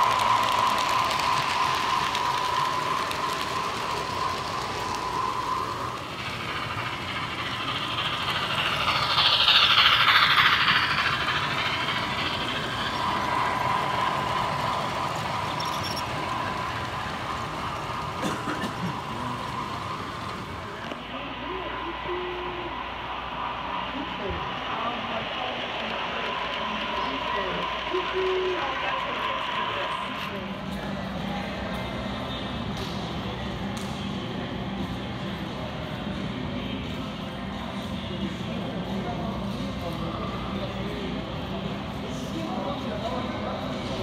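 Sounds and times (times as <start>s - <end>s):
model train wheels rattling: 0.0s - 21.0s
high whine: 0.0s - 25.0s.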